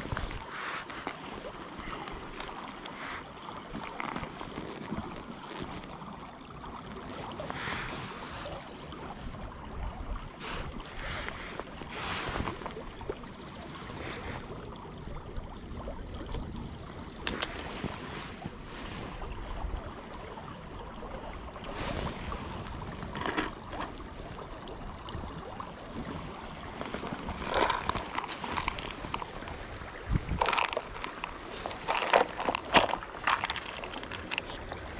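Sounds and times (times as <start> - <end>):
hands handling fishing line: 0.0 - 5.8, 23.0 - 24.0, 26.8 - 29.6, 30.2 - 34.9
river water flowing: 0.0 - 34.9
wind buffeting microphone: 25.4 - 31.7.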